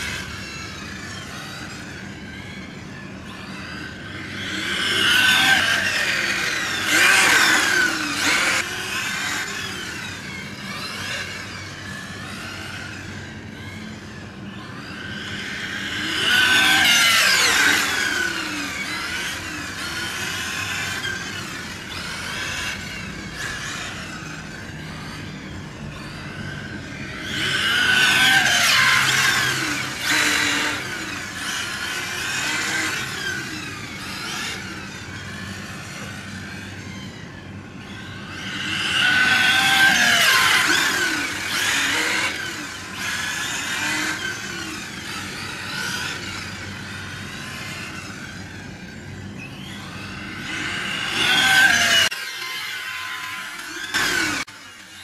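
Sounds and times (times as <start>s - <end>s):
electric rc car whining past: 0.0s - 55.0s.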